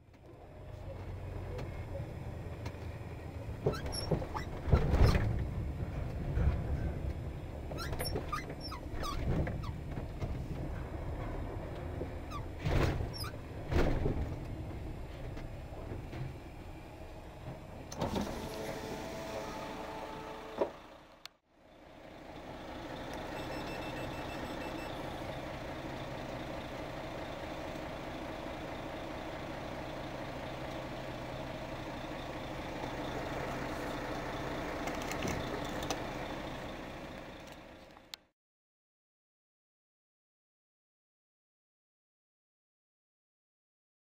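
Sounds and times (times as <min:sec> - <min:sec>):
diesel engine idling: 0:00.1 - 0:04.8, 0:05.4 - 0:38.2
brief squeal: 0:03.7 - 0:05.2, 0:07.7 - 0:09.3, 0:18.1 - 0:20.6, 0:23.3 - 0:25.2.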